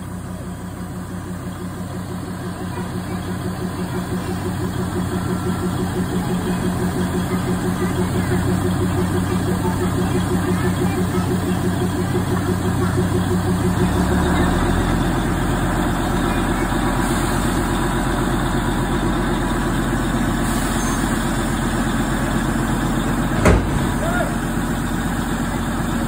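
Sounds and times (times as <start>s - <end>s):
diesel locomotive idling: 0.0s - 26.0s
sharp knock: 23.4s - 24.0s.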